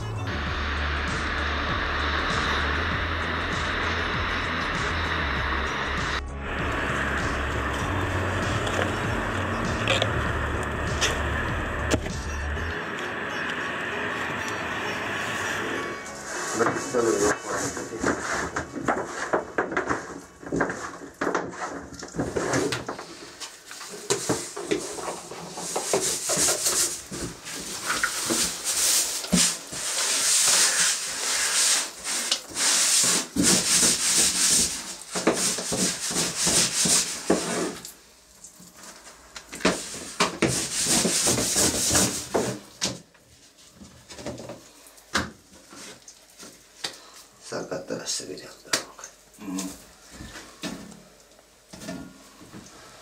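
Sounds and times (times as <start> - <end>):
rubbing and scraping strokes: 15.3 - 37.9, 39.7 - 42.7.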